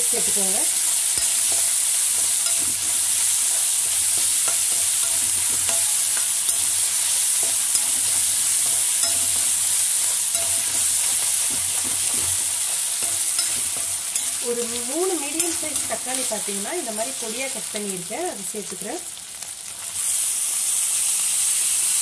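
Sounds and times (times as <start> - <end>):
onions sizzling in hot oil: 0.0 - 22.0
metal spatula scraping pan: 1.0 - 16.1.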